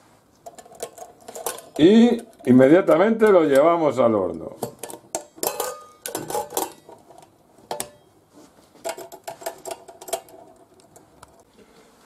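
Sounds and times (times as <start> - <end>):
metal clinking on metal: 4.8 - 7.0.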